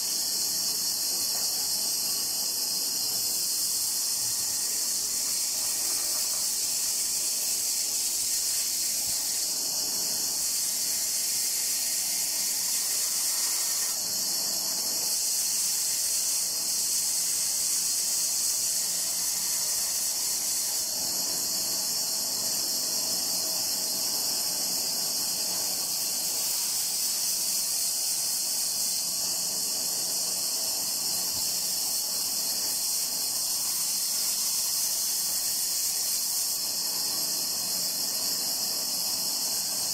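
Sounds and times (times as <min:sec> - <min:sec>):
band saw cutting wood: 0:00.0 - 0:23.0.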